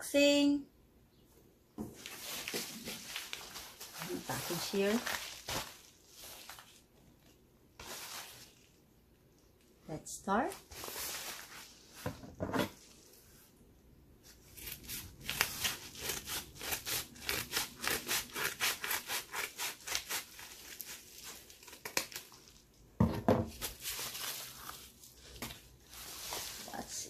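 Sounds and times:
paper crinkling: 2.0s - 8.8s.

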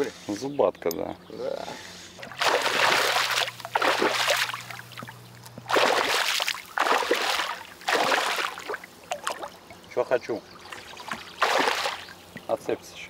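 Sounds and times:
fish splashing at water surface: 2.2s - 9.8s, 10.7s - 12.5s.

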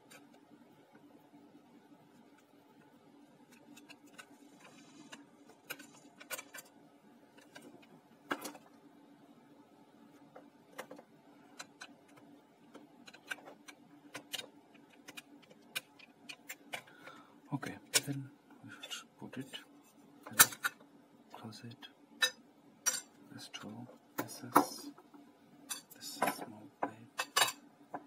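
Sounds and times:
faint steady hum: 0.0s - 28.0s
plastic and metal parts clicking: 10.8s - 16.9s.

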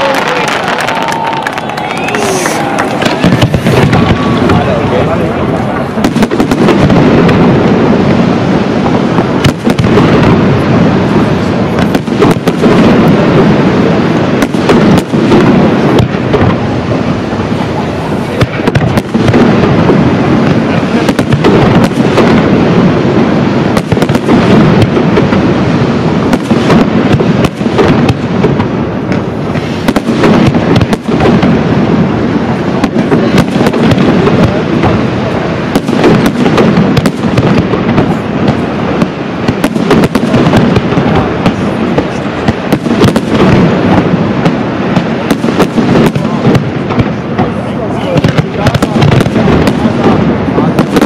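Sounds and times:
firework shells bursting: 0.0s - 7.6s.

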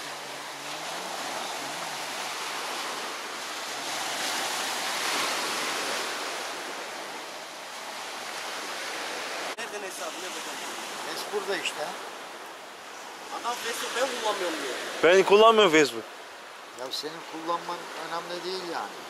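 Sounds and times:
waves washing on pebble beach: 0.0s - 12.2s.

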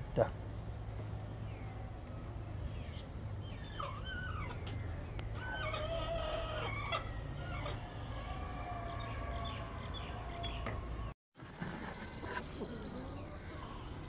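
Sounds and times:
birds calling: 0.2s - 11.1s.

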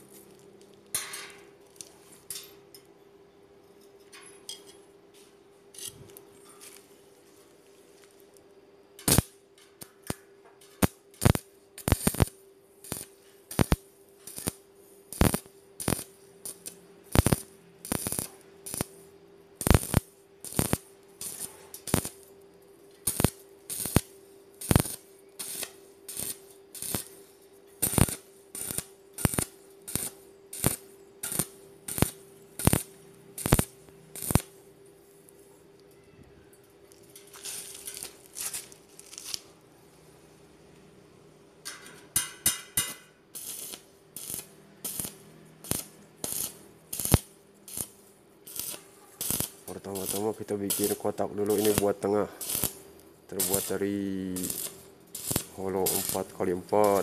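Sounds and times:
welding arc sizzling bursts: 9.0s - 10.2s, 10.8s - 22.4s, 23.0s - 35.3s, 37.3s - 39.6s, 42.4s - 57.0s.

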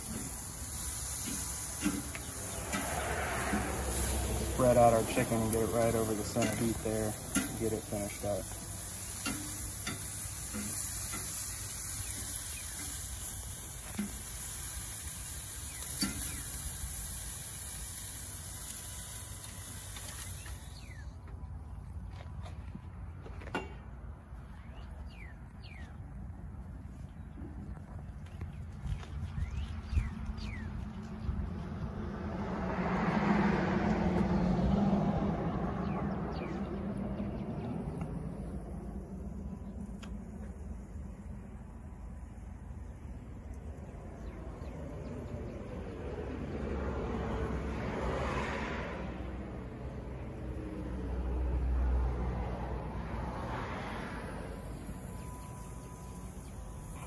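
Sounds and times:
vehicle passing by: 0.0s - 14.3s, 28.8s - 57.0s
chicken sizzling on grill: 0.0s - 21.1s, 36.4s - 57.0s.

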